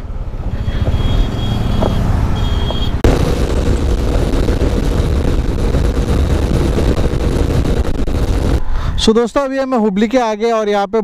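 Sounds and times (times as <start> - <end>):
motorcycle engine: 0.0 - 7.2
wind rush: 3.0 - 9.1.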